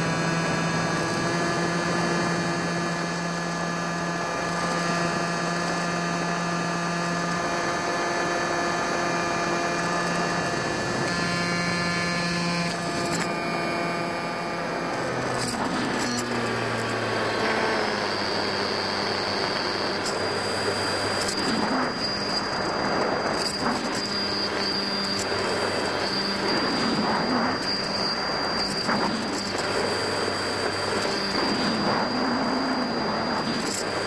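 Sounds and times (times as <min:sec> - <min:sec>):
electric motor drone with high whine: 0:00.0 - 0:34.0
rushing wind: 0:00.0 - 0:34.0.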